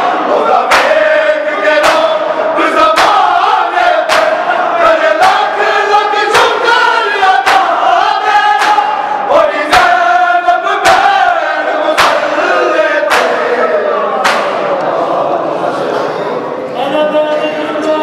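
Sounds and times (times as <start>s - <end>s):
men chanting in unison: 0.0s - 16.2s
chest beating slaps: 0.7s - 1.0s, 1.8s - 2.3s, 4.0s - 4.4s, 7.4s - 7.8s, 8.6s - 9.0s, 11.9s - 12.4s, 13.0s - 13.6s, 14.2s - 14.8s.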